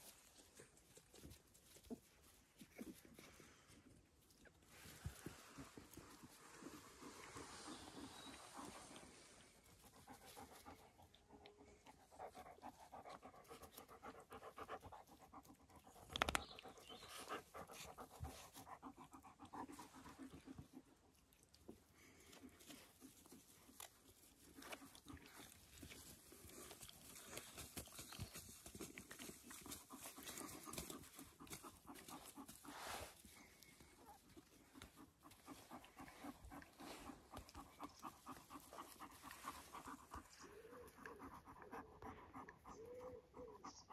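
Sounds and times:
puppies rustling in grass: 0.0 - 11.2, 21.6 - 41.0
dogs panting: 0.0 - 43.9.

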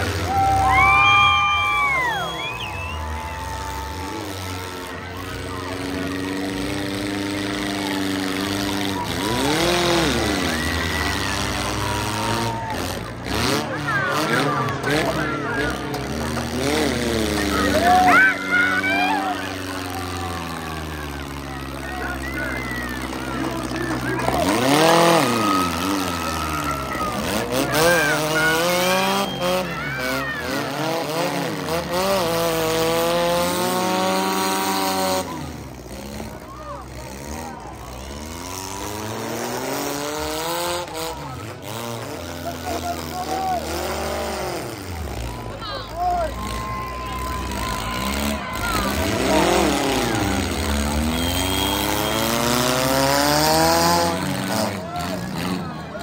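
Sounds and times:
car engine revving: 0.0 - 56.0
crowd noise: 0.0 - 56.0
tires spinning: 0.0 - 56.0.

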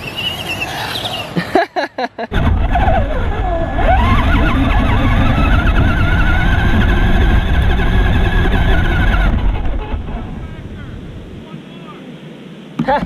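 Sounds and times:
wheels driving over sand: 0.0 - 1.4, 2.3 - 12.0
wind rumble: 2.3 - 12.8
toy truck electric motor whining: 2.4 - 10.2.

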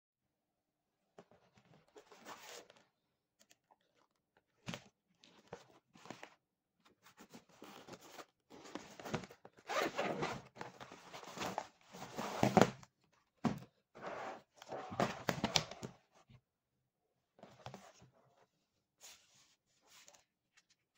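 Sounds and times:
zipper pulled open: 9.7 - 10.5.

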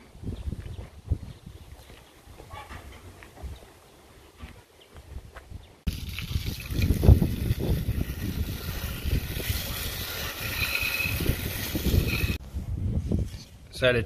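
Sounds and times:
hose spraying water on wheel: 5.9 - 12.4.

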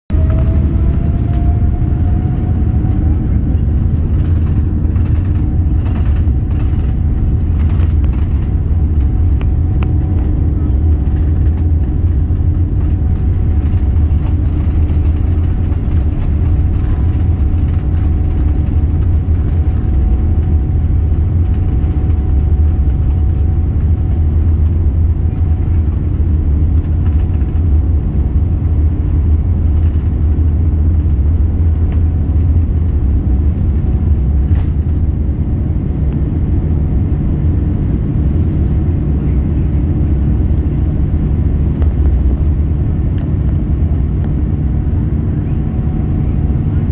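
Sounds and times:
jet engines deep rumble: 0.1 - 46.9
thin engine whine: 0.1 - 46.9.

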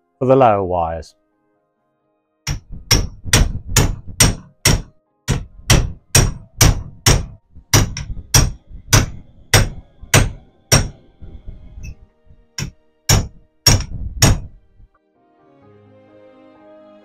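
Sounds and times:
hammer striking metal blocks: 2.5 - 14.6.

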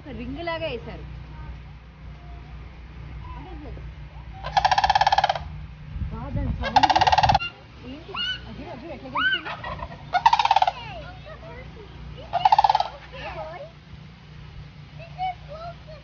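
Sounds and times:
turkey gobbling: 4.2 - 5.6, 6.6 - 8.6, 9.2 - 11.4, 12.2 - 13.6.

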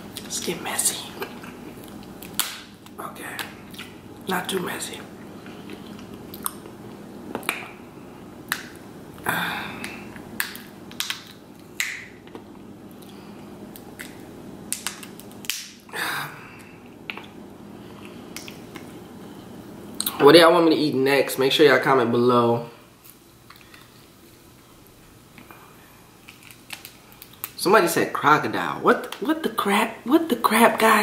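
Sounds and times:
lobster shell cracking: 1.8 - 3.9, 8.5 - 8.8, 9.8 - 12.4, 13.7 - 15.8, 26.2 - 27.6.

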